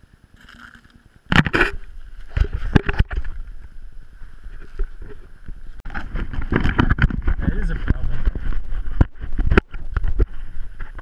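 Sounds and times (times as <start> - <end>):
low rumbling handling noise: 0.2 - 11.0
camera handling knocks and scrapes: 5.9 - 11.0.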